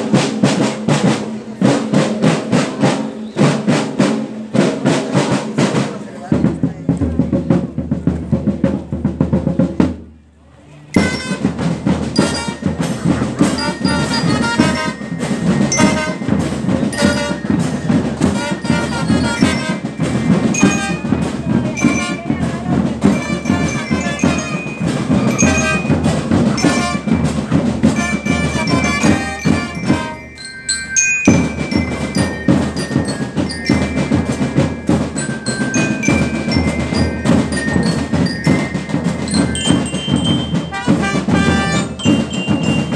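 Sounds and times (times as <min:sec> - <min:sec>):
snare and bass drums marching: 0:00.0 - 0:10.3, 0:10.9 - 0:42.9
bell lyres playing melody: 0:10.8 - 0:42.9.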